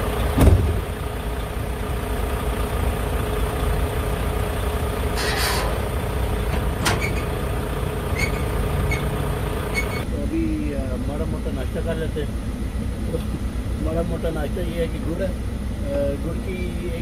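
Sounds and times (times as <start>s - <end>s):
diesel truck engine rumbling: 0.0s - 17.0s
thump: 0.4s - 0.9s.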